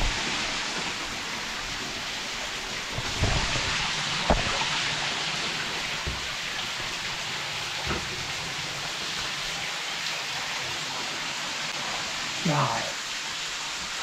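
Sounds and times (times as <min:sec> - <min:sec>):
waterfall rushing: 0:00.0 - 0:14.0
knocks: 0:03.0 - 0:04.8.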